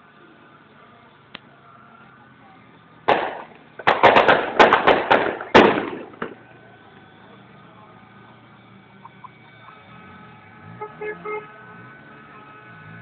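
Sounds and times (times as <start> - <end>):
firecrackers banging: 3.1 - 6.7.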